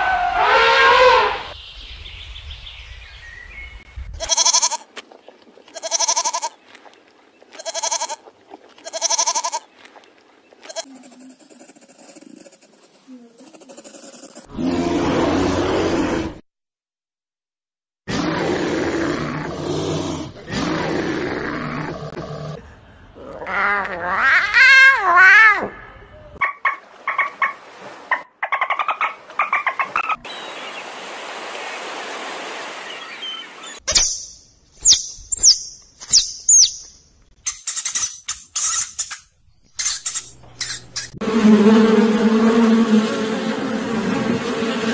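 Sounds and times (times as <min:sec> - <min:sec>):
bear growling: 0:10.8 - 0:16.4, 0:18.1 - 0:24.6, 0:41.2 - 0:44.9
rat squeaking: 0:37.5 - 0:41.2
water hissing: 0:41.2 - 0:44.9.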